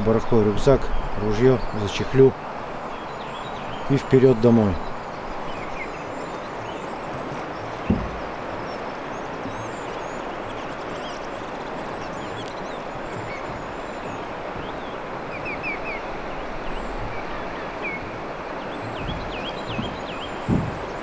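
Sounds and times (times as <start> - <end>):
small songbirds chirping: 0.0 - 21.0
steady rushing noise: 11.9 - 21.0.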